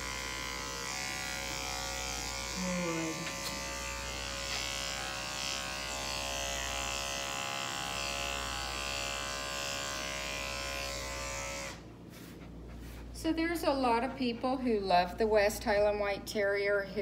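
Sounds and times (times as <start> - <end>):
electric clippers buzzing: 0.0 - 11.9.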